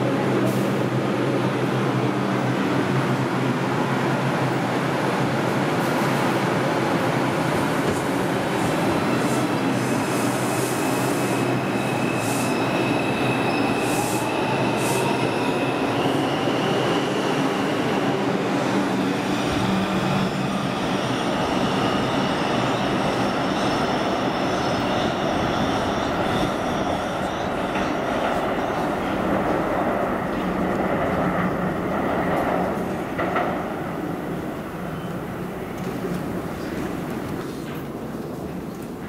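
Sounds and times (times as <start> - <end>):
subway train motor whine: 0.1 - 37.4
wheel and rail noise: 5.8 - 39.0.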